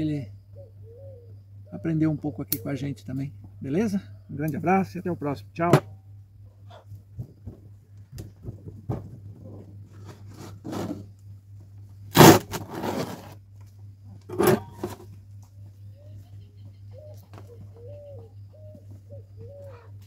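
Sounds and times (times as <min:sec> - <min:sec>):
hands scraping gritty soil: 0:12.1 - 0:13.4.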